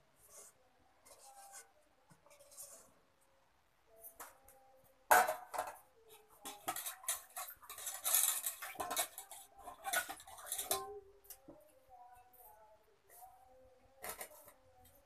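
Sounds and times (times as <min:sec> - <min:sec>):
metal spoon scraping in pot: 0:06.4 - 0:11.0.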